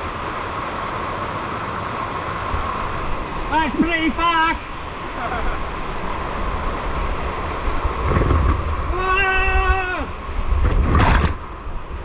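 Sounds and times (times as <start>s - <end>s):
rushing water: 0.0s - 12.0s
wind buffeting on microphone: 4.9s - 12.0s
person wordless call: 8.9s - 10.1s.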